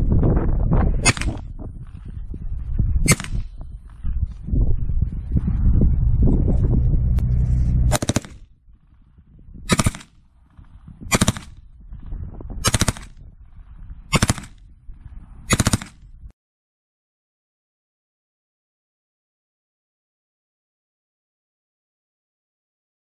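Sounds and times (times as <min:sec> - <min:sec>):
gun single shots: 0:01.0 - 0:01.4, 0:03.1 - 0:03.5, 0:07.9 - 0:08.4, 0:09.7 - 0:10.2, 0:11.1 - 0:11.6, 0:12.6 - 0:13.2, 0:14.1 - 0:14.6, 0:15.5 - 0:16.0
submachine gun full-auto burst: 0:07.9 - 0:08.4, 0:11.1 - 0:11.5, 0:12.6 - 0:13.1, 0:15.5 - 0:15.9.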